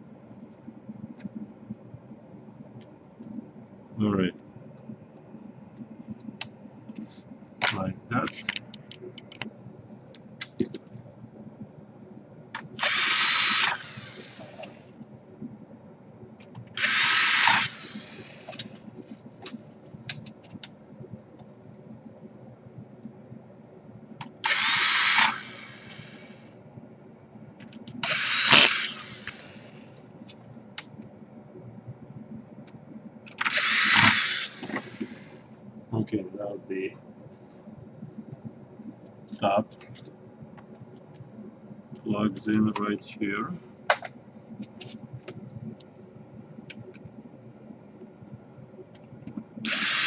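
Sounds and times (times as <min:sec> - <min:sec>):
electric screwdriver driving screws: 0:12.8 - 0:14.8, 0:16.8 - 0:18.7, 0:24.4 - 0:26.3, 0:28.0 - 0:29.8, 0:33.4 - 0:35.4, 0:49.7 - 0:50.0.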